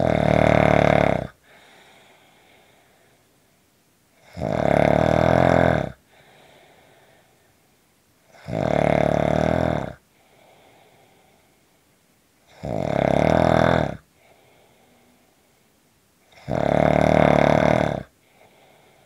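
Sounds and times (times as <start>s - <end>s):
loud snoring: 0.0s - 1.4s, 4.2s - 6.0s, 8.3s - 10.0s, 12.5s - 14.1s, 16.3s - 18.7s
faint breathing out: 1.4s - 3.4s, 6.0s - 7.6s, 10.1s - 11.8s, 14.1s - 15.8s, 18.2s - 19.0s.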